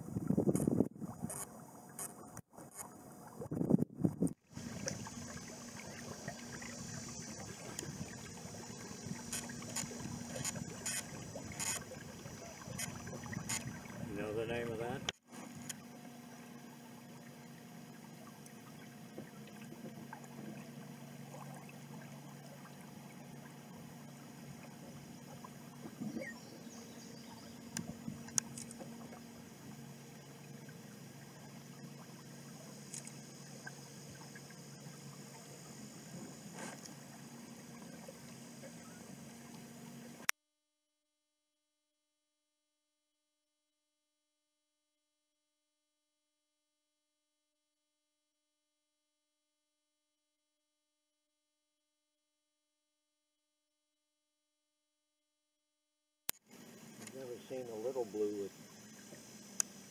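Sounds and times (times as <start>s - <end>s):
low steady hum: 0.0s - 40.3s
paddle strokes in water: 0.0s - 40.3s, 56.4s - 59.9s
water trickling off paddle: 0.0s - 40.3s.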